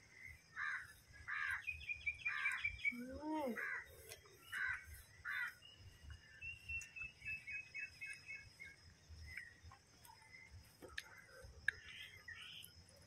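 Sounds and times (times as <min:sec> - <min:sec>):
insects hissing: 0:00.0 - 0:13.0
crow cawing: 0:00.5 - 0:01.7, 0:03.6 - 0:05.6
small bird high chirps: 0:00.8 - 0:05.8.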